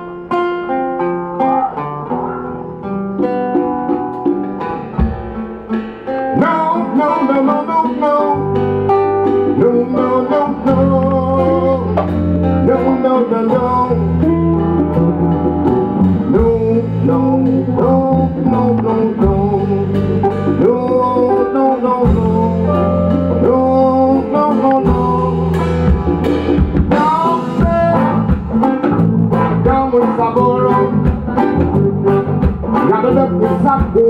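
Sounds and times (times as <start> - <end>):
live band music: 0.0 - 34.0
picked acoustic guitar: 0.0 - 34.0
low bass notes: 8.4 - 34.0.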